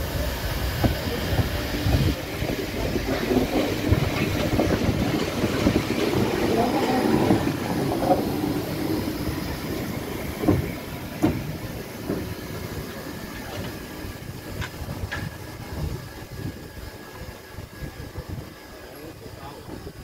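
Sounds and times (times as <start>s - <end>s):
steam locomotive rolling past: 0.0s - 20.0s
metallic clacks from wheels: 14.5s - 15.9s.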